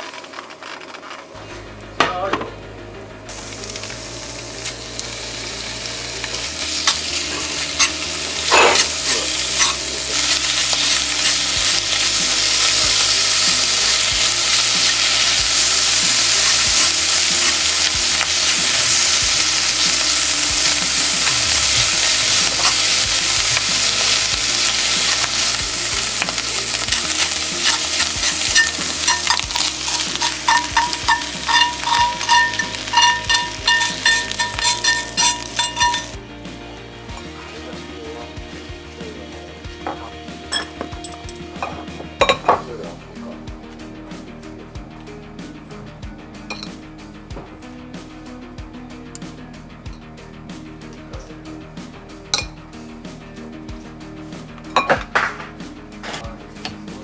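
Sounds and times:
bacon sizzling in a skillet: 3.3s - 36.2s
tongs clicking against pan: 7.7s - 8.0s, 9.6s - 11.4s, 26.2s - 36.1s.

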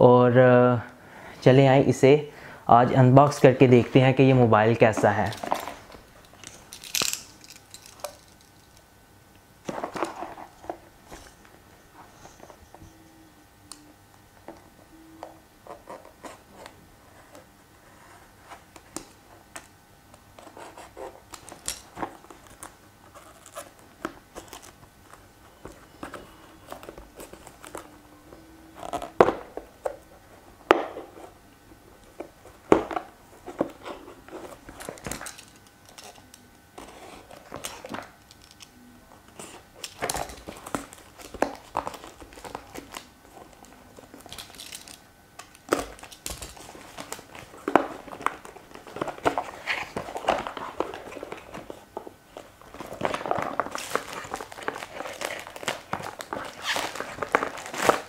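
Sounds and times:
plastic shrink-wrap crinkling: 39.4s - 58.0s.

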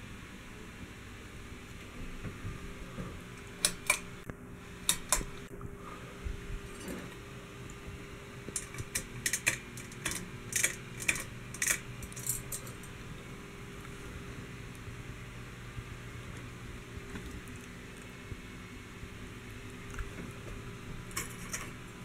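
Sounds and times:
fan humming: 0.0s - 22.0s
pull-chain switch clicks: 3.6s - 4.1s.

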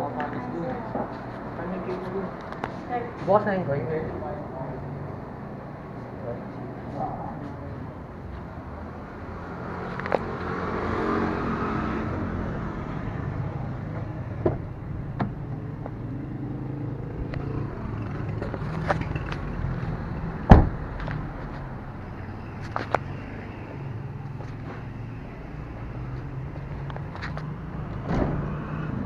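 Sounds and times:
road vehicle noise: 0.0s - 29.0s.

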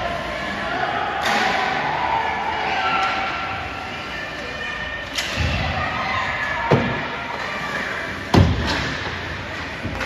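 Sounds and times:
crowd noise: 0.0s - 10.0s
slams and thuds echoing: 8.3s - 9.2s.

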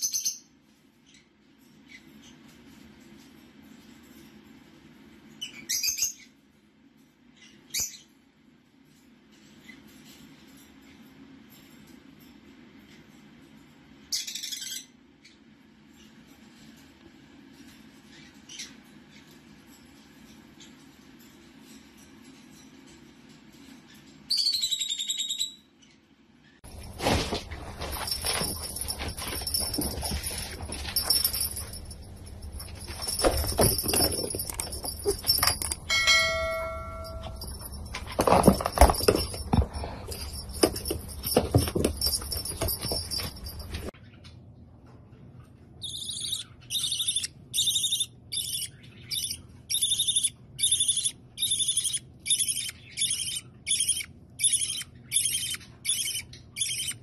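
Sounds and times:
scuffling and knocking: 26.7s - 43.9s
baby bird begging peeps: 45.8s - 57.0s.

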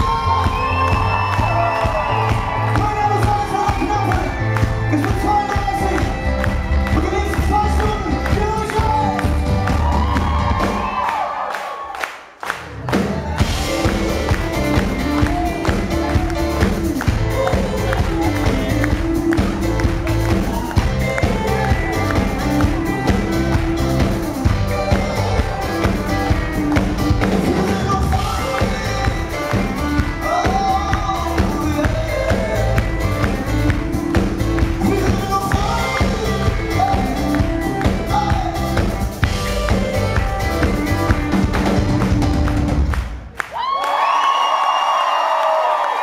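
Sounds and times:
male lead vocal: 0.0s - 9.8s, 13.6s - 41.1s
electric bass: 0.0s - 10.8s, 12.9s - 43.1s
drum kit: 0.0s - 11.2s, 12.7s - 43.4s.

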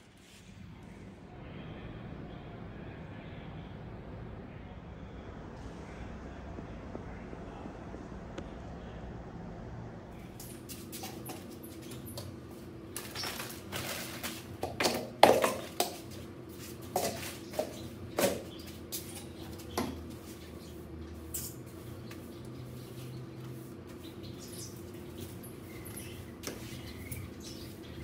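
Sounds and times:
plastic dustpan knocking: 13.0s - 16.2s
broom sweeping soil on tiles: 16.0s - 28.0s.

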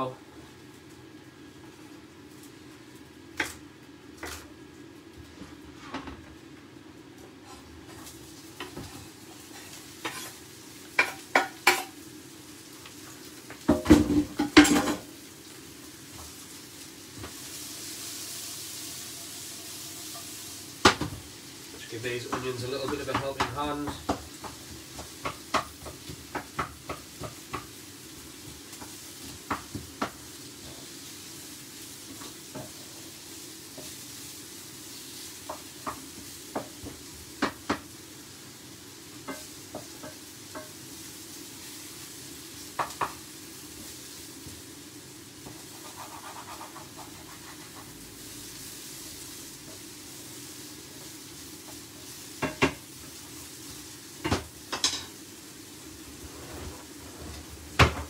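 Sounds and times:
vegetables sizzling in a frying pan: 0.0s - 58.0s
spatula knocking against pan: 22.3s - 27.8s.

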